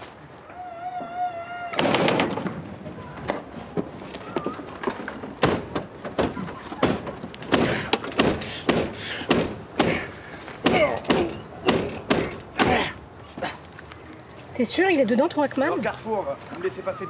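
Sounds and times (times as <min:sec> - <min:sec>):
sharp knocks and thuds: 0:04.8 - 0:12.9.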